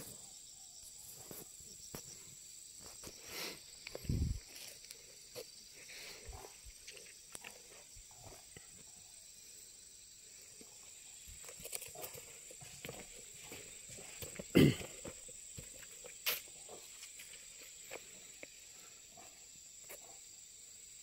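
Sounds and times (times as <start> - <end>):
high-pitched insect drone: 0.0 - 21.0
faint ticks and crackles: 1.1 - 8.9.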